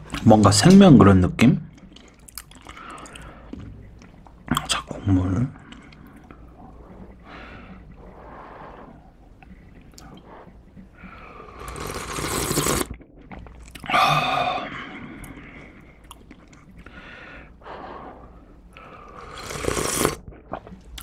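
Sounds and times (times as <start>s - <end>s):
chewing: 1.7s - 5.0s, 5.6s - 13.9s, 15.1s - 21.0s
slurping noodles: 5.6s - 13.0s, 17.6s - 21.0s
slurping broth from a spoon: 5.8s - 13.0s, 17.7s - 20.8s.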